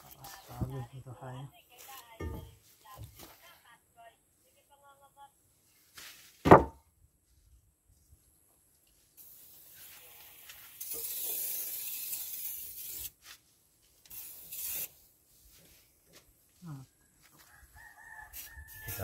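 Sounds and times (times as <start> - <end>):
aerosol spray can hissing: 9.2 - 13.2, 14.0 - 15.1.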